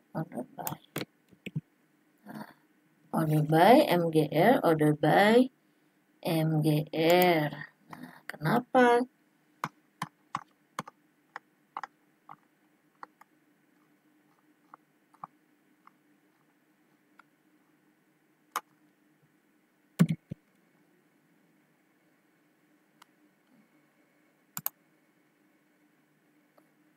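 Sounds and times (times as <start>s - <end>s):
faint steady hum: 0.0s - 26.9s
computer mouse and keyboard clicks: 0.6s - 1.6s, 9.6s - 13.3s, 20.0s - 20.4s, 24.6s - 24.8s.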